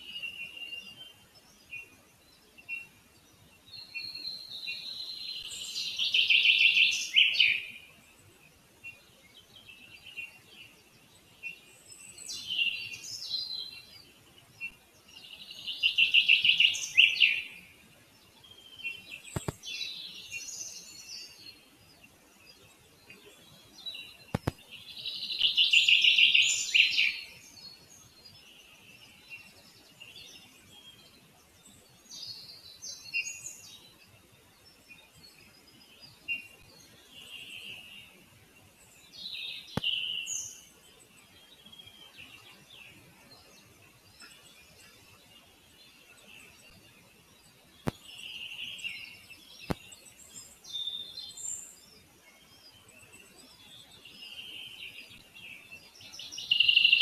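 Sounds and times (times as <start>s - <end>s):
songbirds singing: 0.0s - 57.0s
sharp clicks: 19.3s - 19.6s, 24.3s - 24.6s.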